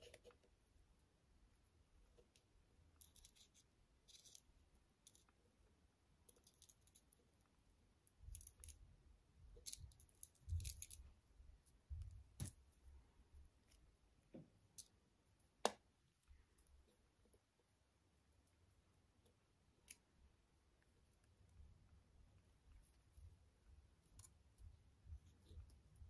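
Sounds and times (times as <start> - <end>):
beads and wire clicking and rustling: 2.3 - 5.4, 6.2 - 7.2, 9.6 - 12.6.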